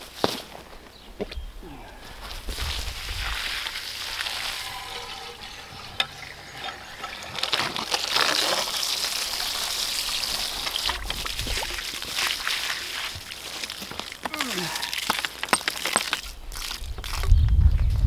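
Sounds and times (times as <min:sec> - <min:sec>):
water spraying hiss: 0:02.6 - 0:13.8.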